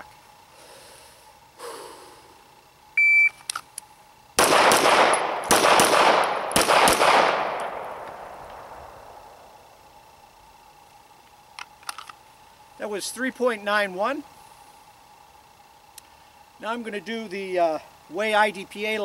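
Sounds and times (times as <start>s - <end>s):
shot timer beep: 3.0s - 3.4s
gunshot echo: 4.4s - 8.8s
pistol shots: 4.4s - 8.8s.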